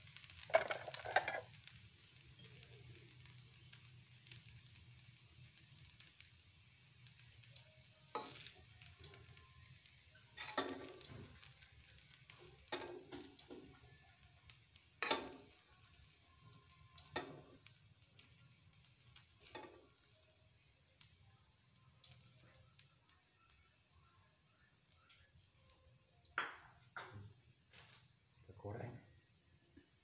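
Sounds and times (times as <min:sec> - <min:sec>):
faint steady hiss: 0:00.0 - 0:30.0
metal spatula scraping a wok: 0:10.3 - 0:11.2.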